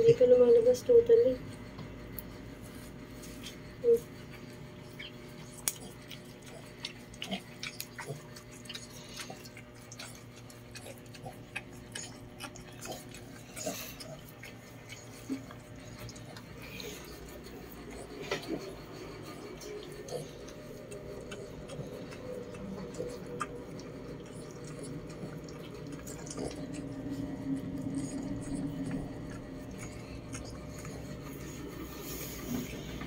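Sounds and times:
faint steady hum: 0.0 - 33.0
dog licking wet clicks: 19.1 - 31.4.

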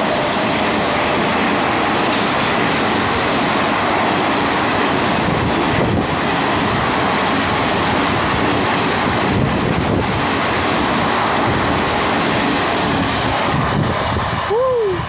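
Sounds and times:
train rushing past: 0.0 - 15.0.

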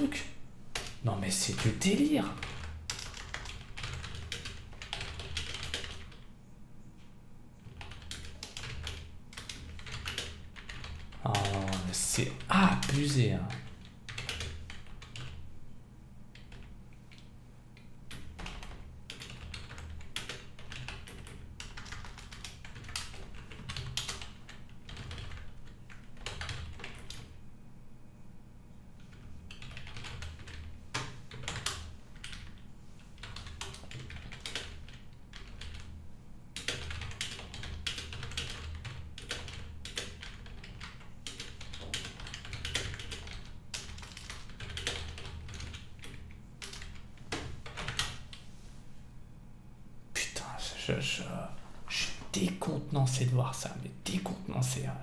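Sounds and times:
typing on keyboard: 0.8 - 6.3, 7.6 - 15.4, 16.3 - 17.3, 18.1 - 27.4, 29.0 - 32.6, 33.2 - 35.9, 36.6 - 48.4.

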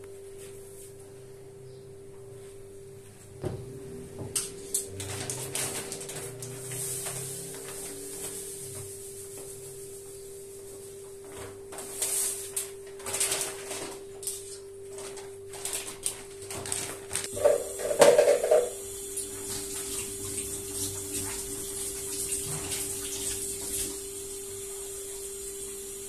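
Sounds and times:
plastic bag rustling: 4.6 - 10.1, 10.8 - 18.7
steady hum: 17.2 - 22.2.

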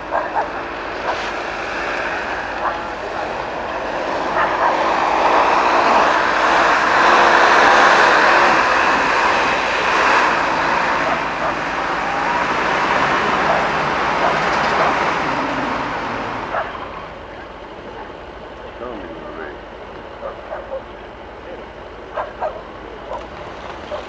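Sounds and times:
engine revving hard: 0.0 - 17.4.

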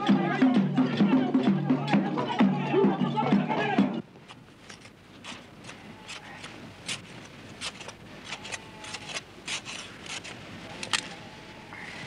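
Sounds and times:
metal blade scraping sandy ground: 5.2 - 10.4.

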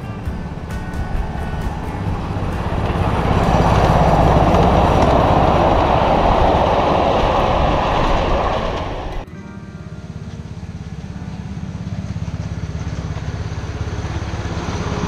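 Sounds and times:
miniature train wheels rolling: 1.1 - 9.2.

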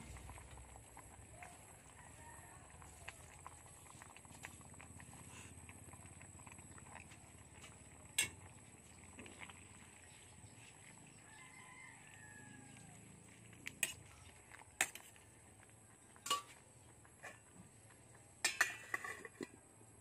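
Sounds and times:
rooster crowing: 1.3 - 3.3, 11.2 - 13.0
metal ladle knocking pot: 16.2 - 16.6, 18.4 - 19.5.

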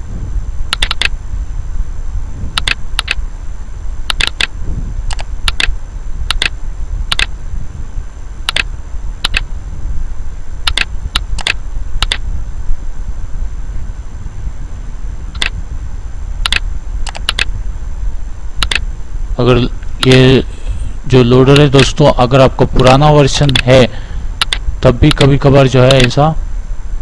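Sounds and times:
steady low hum: 0.0 - 27.0
mouse and keyboard clicks: 0.7 - 1.2, 2.6 - 3.2, 4.1 - 4.5, 5.1 - 7.3, 8.5 - 9.5, 10.7 - 12.2, 15.4 - 15.6, 16.4 - 17.5, 18.6 - 18.8, 23.5 - 23.7, 24.4 - 25.2, 25.9 - 26.2.

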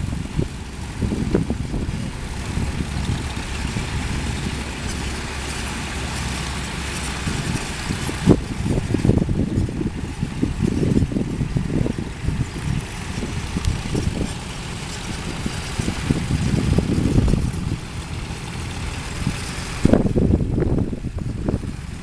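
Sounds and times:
tractor engines rumbling: 0.0 - 22.0.

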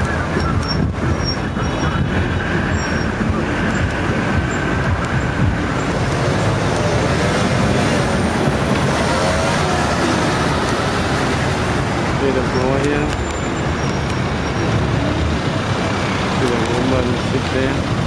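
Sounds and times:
road traffic passing: 0.0 - 18.0.

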